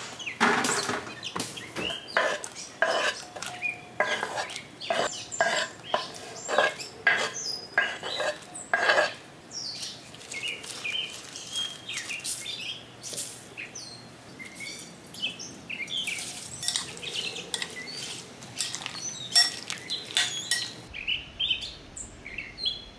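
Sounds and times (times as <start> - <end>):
vegetables scraped on cutting board: 1.9 - 9.2.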